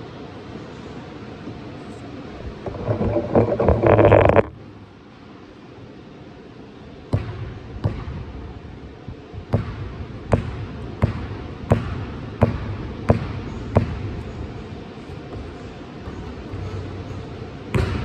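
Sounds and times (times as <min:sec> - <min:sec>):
basketball bouncing on gym floor: 0:07.1 - 0:08.3, 0:09.5 - 0:14.4, 0:17.6 - 0:18.0.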